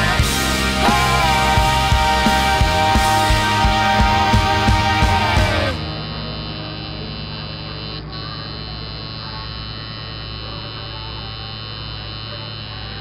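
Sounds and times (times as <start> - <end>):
background music: 0.0 - 6.1
tattoo machine buzzing: 0.0 - 13.0.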